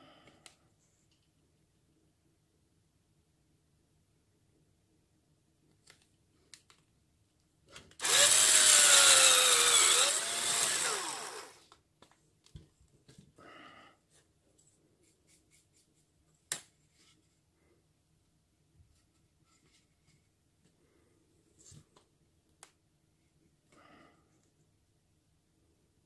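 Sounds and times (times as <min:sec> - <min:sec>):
electric drill boring into wood: 0:08.0 - 0:11.6.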